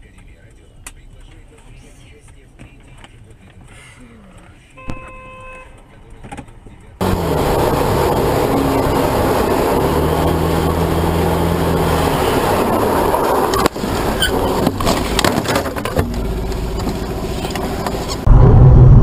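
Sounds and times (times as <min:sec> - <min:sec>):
crash knocks and scrapes: 0:14.5 - 0:16.2
wind rush: 0:18.2 - 0:19.0.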